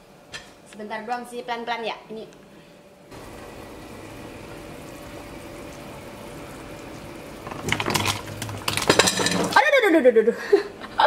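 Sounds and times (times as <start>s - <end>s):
pot simmering: 3.1s - 9.6s.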